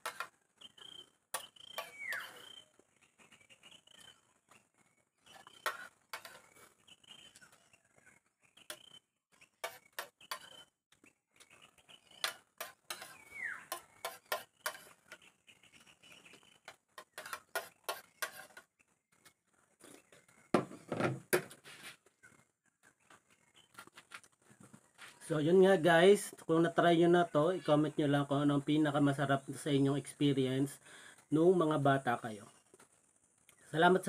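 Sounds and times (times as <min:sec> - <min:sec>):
metal spoon scraping ceramic plate: 0:01.5 - 0:02.6, 0:05.3 - 0:06.5, 0:09.6 - 0:10.6, 0:12.2 - 0:15.2, 0:17.0 - 0:18.6.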